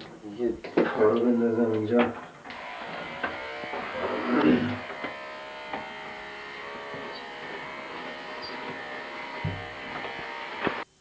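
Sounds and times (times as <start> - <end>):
electric hair clipper buzzing: 2.5 - 10.9.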